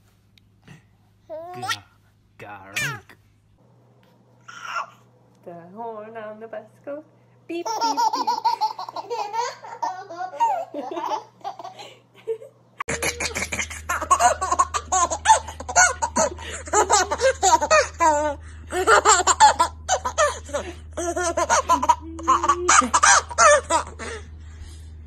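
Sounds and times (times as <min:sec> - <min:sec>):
baby giggling: 0:07.6 - 0:11.9, 0:12.9 - 0:24.2.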